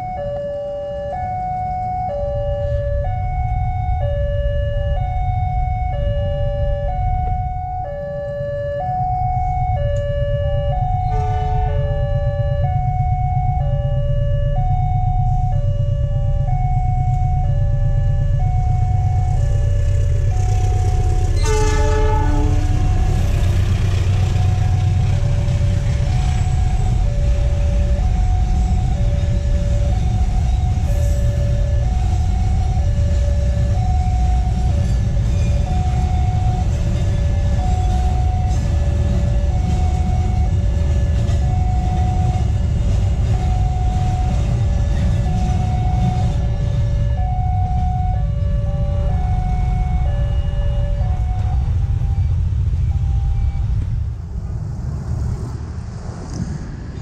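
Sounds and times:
level crossing alarm two tones: 0:00.0 - 0:53.8
freight train rumbling: 0:00.0 - 0:57.0
train horn: 0:10.4 - 0:15.6, 0:19.3 - 0:29.4.

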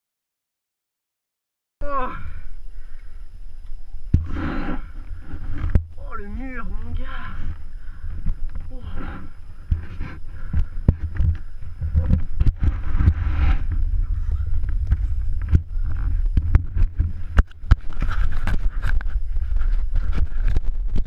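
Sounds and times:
wind rumble on microphone: 0:03.3 - 0:21.0
mountain bike rattling: 0:04.2 - 0:21.0.

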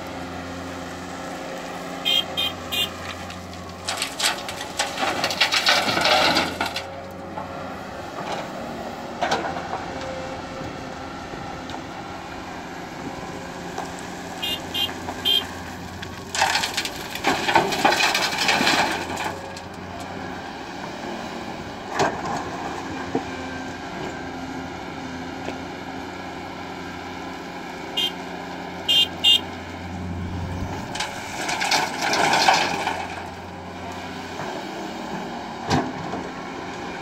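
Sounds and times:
excavator diesel engine running: 0:00.0 - 0:37.0
gravel dropping into metal truck bed: 0:03.1 - 0:07.0, 0:16.0 - 0:19.7, 0:30.9 - 0:33.4.

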